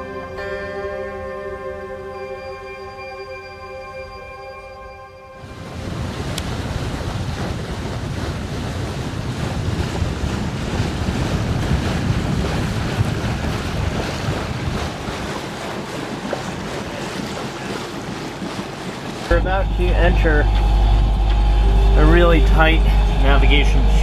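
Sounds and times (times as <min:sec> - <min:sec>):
water rushing along hull: 0:00.0 - 0:24.0
wind buffeting microphone: 0:05.4 - 0:21.3.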